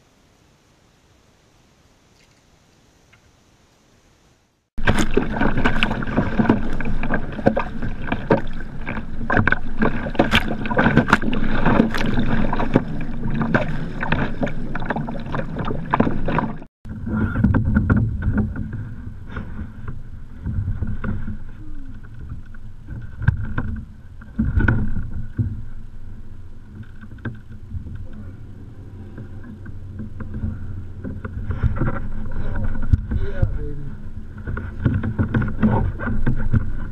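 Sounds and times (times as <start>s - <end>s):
knocks and splashes: 4.8s - 25.9s, 29.1s - 36.9s
paddle strokes splashing: 4.8s - 36.9s
water lapping at hull: 4.8s - 36.9s
water rushing along hull: 4.8s - 36.9s.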